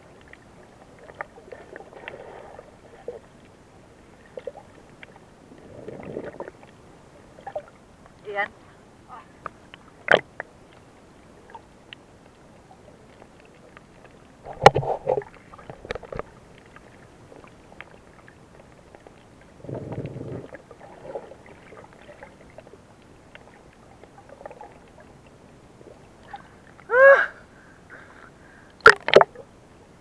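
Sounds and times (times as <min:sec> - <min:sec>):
low underwater rushing: 0:00.0 - 0:29.7
quiet hiss: 0:00.0 - 0:30.0
underwater clicks and knocks: 0:09.4 - 0:10.8, 0:14.5 - 0:16.7, 0:28.8 - 0:29.4.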